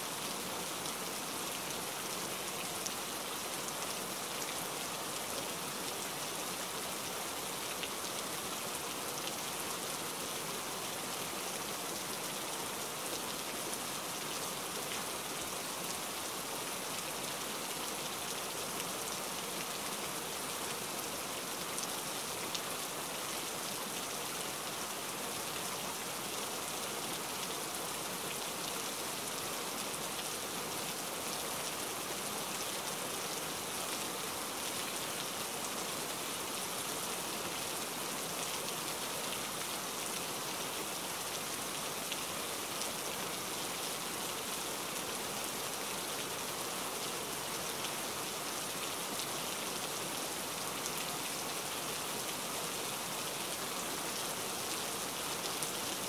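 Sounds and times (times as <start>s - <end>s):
steady rain hiss: 0.0s - 56.0s.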